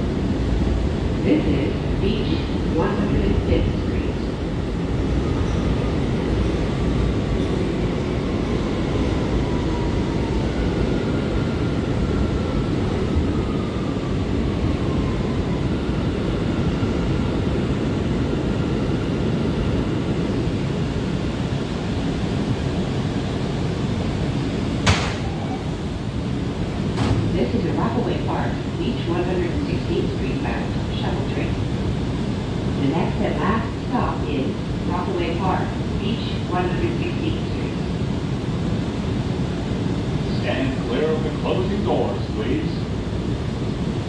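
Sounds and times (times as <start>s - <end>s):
subway car wheels rumbling: 0.0s - 44.0s
sharp knock: 24.8s - 25.2s.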